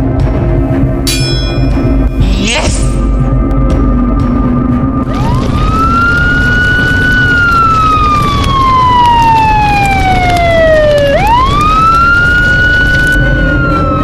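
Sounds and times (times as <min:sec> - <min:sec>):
police siren wailing: 0:02.9 - 0:14.0.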